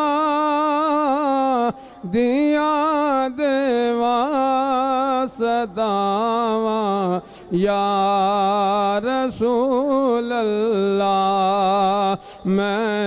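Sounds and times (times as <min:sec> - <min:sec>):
man singing into a microphone: 0:00.0 - 0:13.0.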